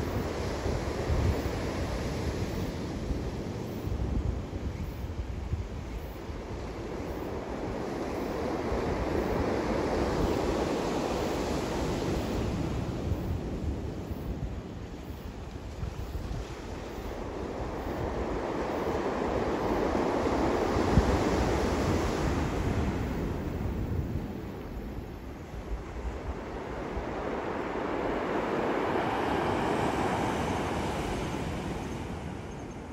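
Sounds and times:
wind rumbling on microphone: 0.0s - 32.9s
sea surf breaking: 16.6s - 32.5s.

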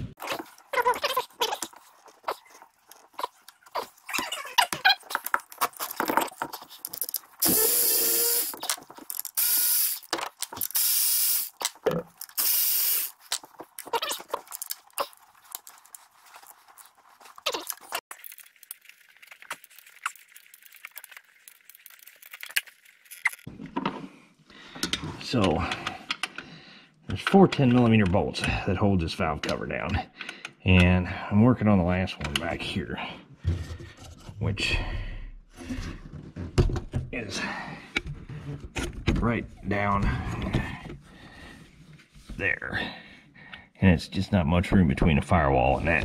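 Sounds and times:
hand ratchet ratcheting: 6.8s - 15.2s.

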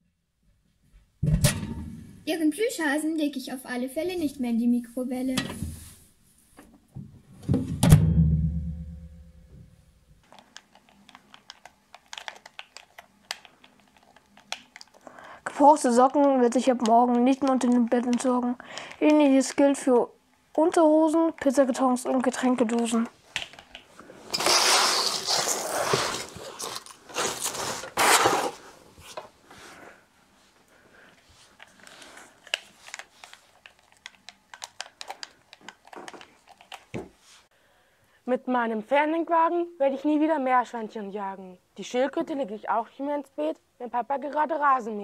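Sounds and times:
boxes scraping across wooden floor: 24.3s - 29.8s.

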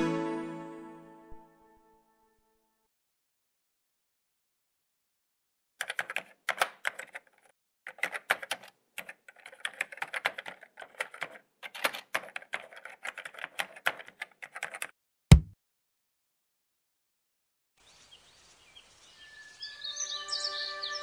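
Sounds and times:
rapid keyboard typing: 5.8s - 15.5s
heavy stamp thump: 15.3s - 15.6s.

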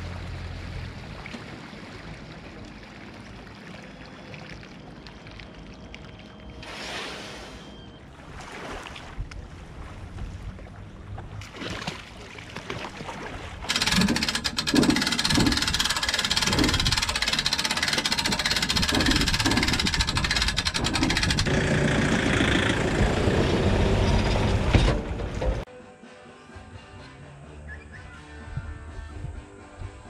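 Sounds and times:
vehicle engine rumble: 0.0s - 6.5s, 13.7s - 25.7s
winch ratcheting clicks: 13.7s - 21.5s.

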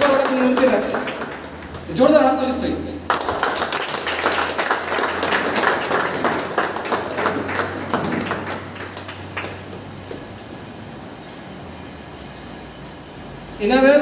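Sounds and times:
audience applauding: 0.0s - 2.2s, 3.1s - 10.3s.

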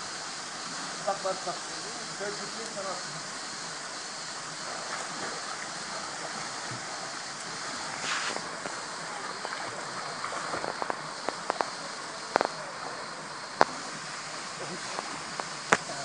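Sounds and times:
small waterfall rushing: 0.0s - 16.0s
swimmer splashing: 0.0s - 16.0s.

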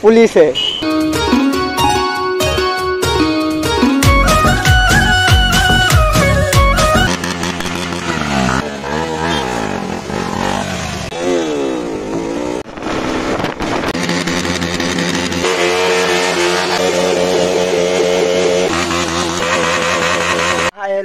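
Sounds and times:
motorcycle engine revving: 4.0s - 20.8s.

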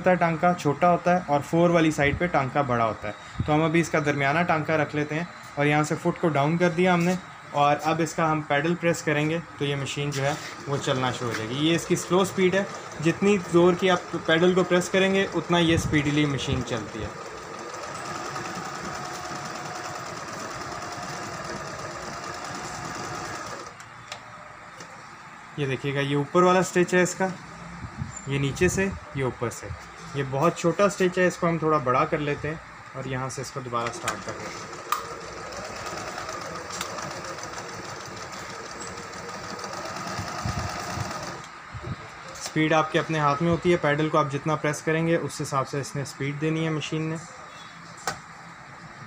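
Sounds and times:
sewing machine running: 10.6s - 23.8s, 34.0s - 41.5s.

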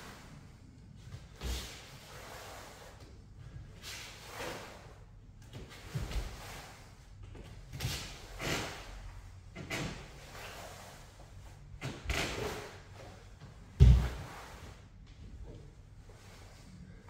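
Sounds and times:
bare feet thudding on wooden floor: 13.8s - 14.3s.

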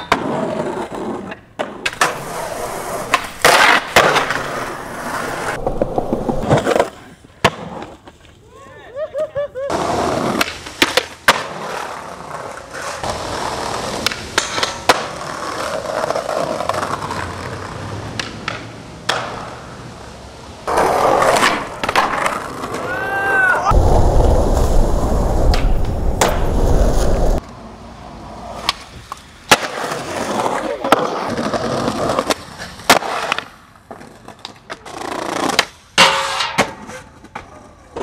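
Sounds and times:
skateboard clacks: 0.0s - 8.2s, 9.7s - 20.0s, 20.7s - 22.9s, 28.6s - 38.0s
skateboards rolling on pavement: 0.0s - 38.0s
loud low rumble: 23.7s - 27.4s.

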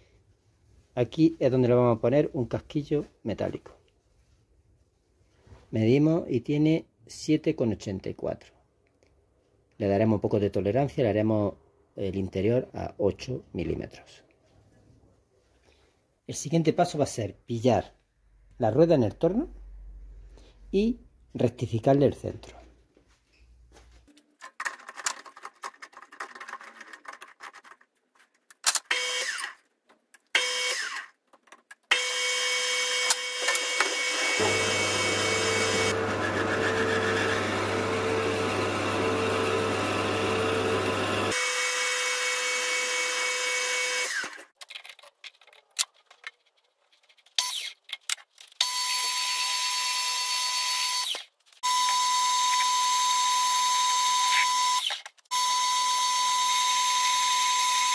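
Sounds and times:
drill bit boring plastic: 28.7s - 29.6s, 30.2s - 31.1s, 31.8s - 45.5s, 47.4s - 57.9s
lathe humming: 33.8s - 41.4s.

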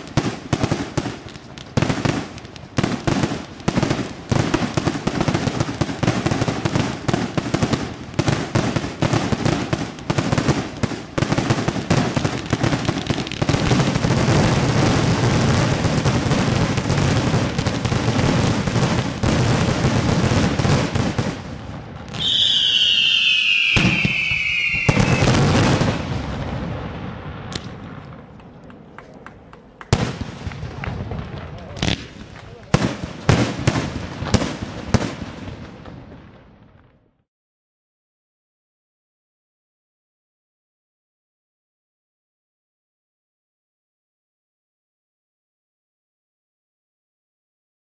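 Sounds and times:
fireworks bangs and crackles: 0.0s - 37.3s
falling firework whistle: 22.1s - 26.2s.

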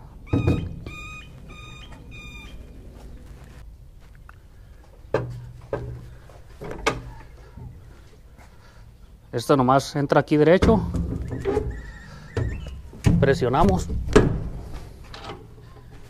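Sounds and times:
short high chirping tones: 0.2s - 2.7s
metal door clanking shut: 0.3s - 1.2s, 10.6s - 15.5s.

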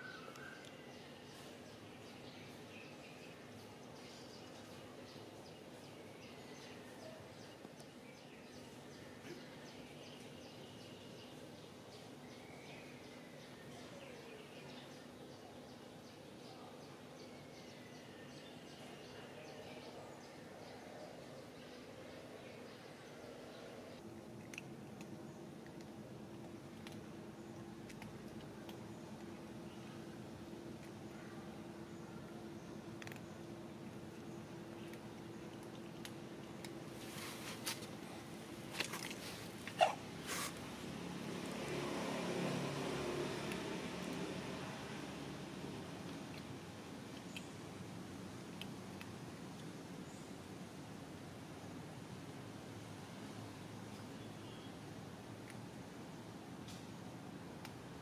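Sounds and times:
distant birds chirping: 0.0s - 24.0s
steady low hum: 0.0s - 58.0s
cats crunching food: 24.0s - 49.9s.

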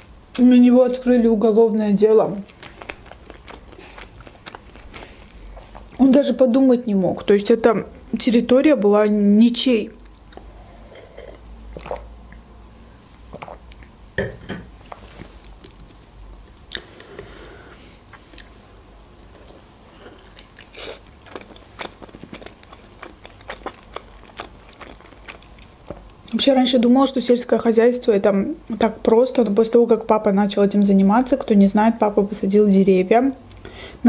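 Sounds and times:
crunchy chewing: 2.4s - 6.0s, 14.8s - 26.3s.

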